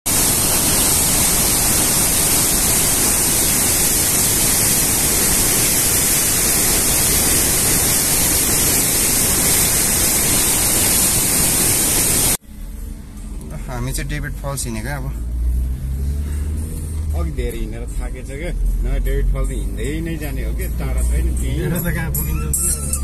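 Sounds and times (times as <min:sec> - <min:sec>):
waterfall rushing: 0:00.1 - 0:12.4.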